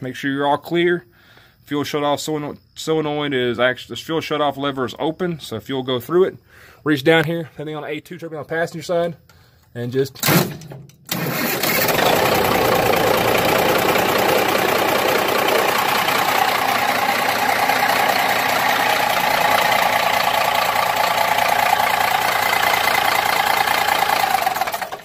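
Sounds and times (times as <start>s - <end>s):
diesel truck engine starting and running: 10.2s - 25.0s.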